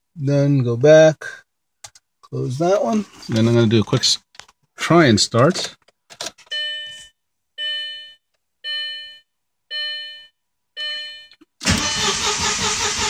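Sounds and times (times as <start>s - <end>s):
dashboard warning chime: 6.5s - 12.1s
starter cranking engine: 11.6s - 13.0s.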